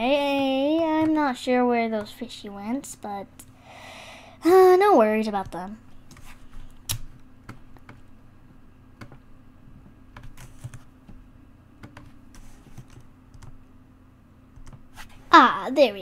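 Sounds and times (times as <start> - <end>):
faint steady hum: 0.0 - 16.0
keyboard and mouse clicks: 5.4 - 8.0, 11.8 - 13.6, 14.6 - 14.8.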